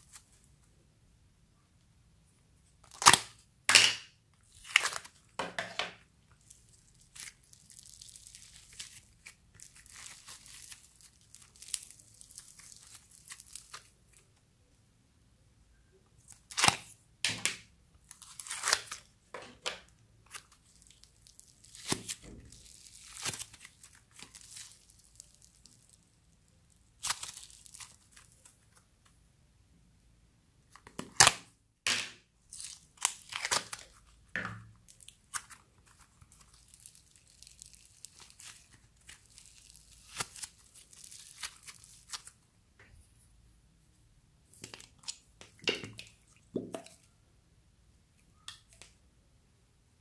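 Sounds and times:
crunchy crackling of clay: 0:06.4 - 0:14.3, 0:19.8 - 0:28.6, 0:32.4 - 0:42.4
crinkly rustle: 0:20.4 - 0:28.6, 0:34.9 - 0:42.4.

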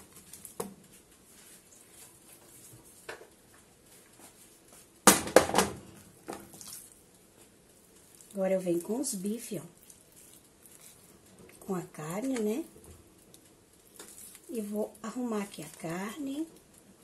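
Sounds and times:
faint rustling: 0:06.1 - 0:17.0.

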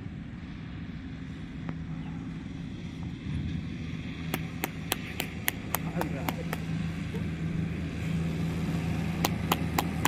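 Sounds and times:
motorcycle engine approaching: 0:00.0 - 0:10.0.

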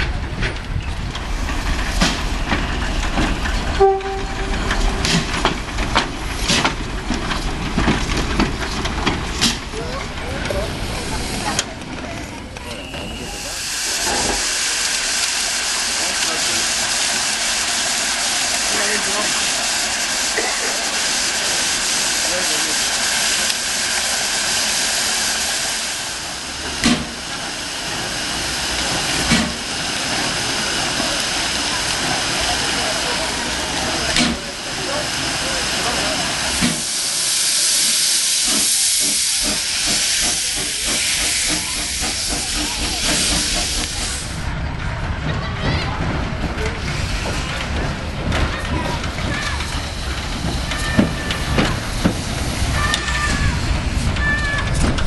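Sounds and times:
steam whistle blast: 0:03.8 - 0:04.6
steam locomotive puffing: 0:12.6 - 0:44.5, 0:46.3 - 0:55.0.

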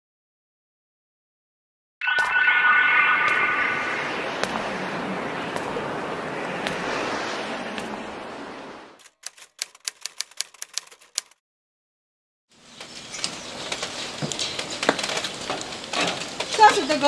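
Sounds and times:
typewriter key clicks: 0:09.0 - 0:11.4
small rustles and knocks: 0:12.8 - 0:17.0.

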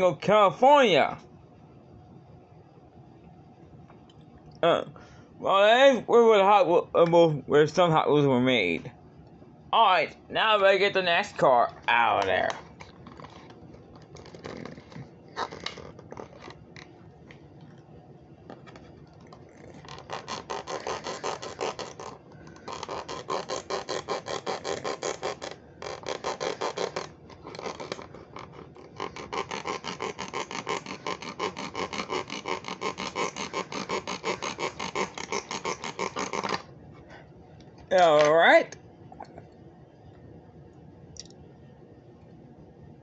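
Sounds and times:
knife sawing rubber bands: 0:19.3 - 0:36.7.

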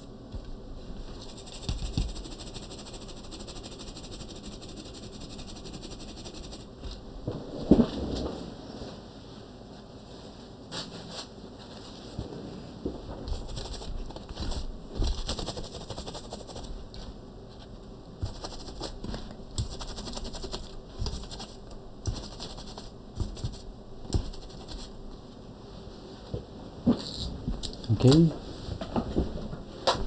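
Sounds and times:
brush scrubbing circuit board: 0:01.2 - 0:06.8, 0:13.3 - 0:16.8, 0:18.2 - 0:24.9.

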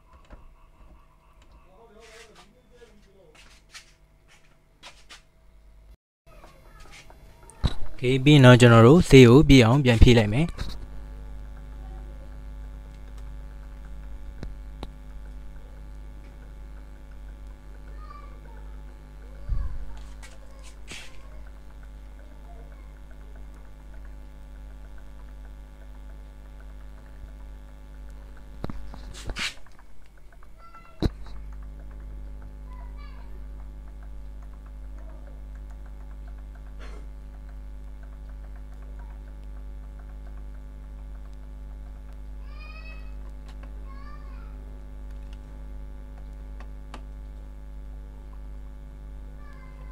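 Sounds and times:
low electrical hum: 0:00.0 - 0:49.9
faint small ticks: 0:10.6 - 0:47.5
spray can clicking on plastic: 0:29.1 - 0:29.6.

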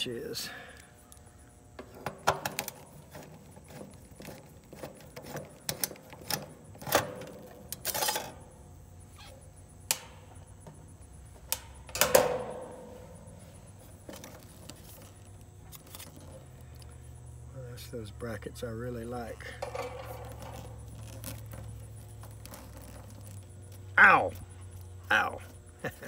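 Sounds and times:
metal clinks and rattles: 0:19.4 - 0:23.8.

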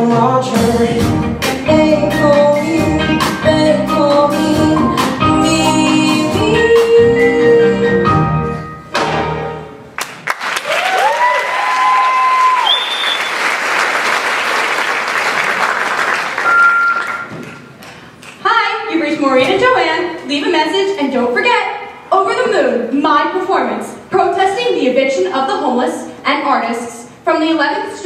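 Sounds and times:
audience applauding: 0:10.0 - 0:18.3
audience whooping: 0:10.5 - 0:13.6.

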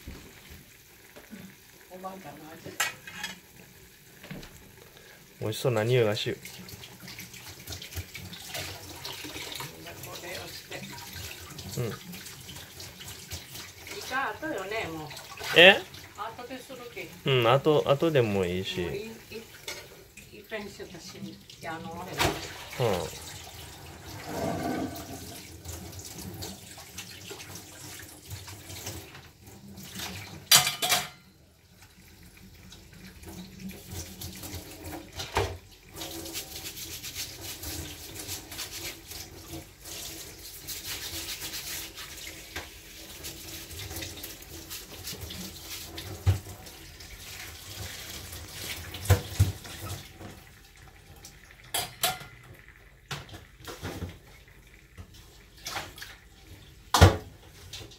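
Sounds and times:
tap running into a sink: 0:00.0 - 0:01.4, 0:22.1 - 0:23.4, 0:33.2 - 0:36.4, 0:42.3 - 0:42.8, 0:43.8 - 0:46.8, 0:47.7 - 0:50.4, 0:51.2 - 0:56.2, 0:56.9 - 0:57.9.

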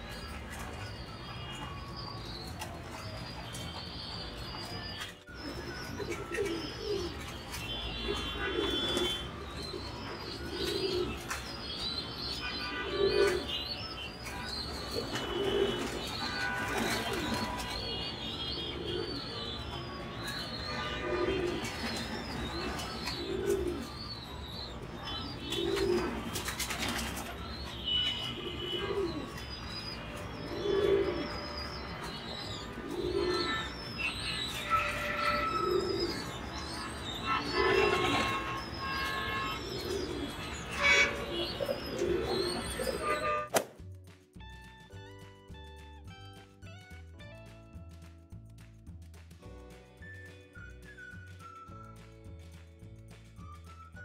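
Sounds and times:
pigeons cooing: 0:05.3 - 0:43.4.

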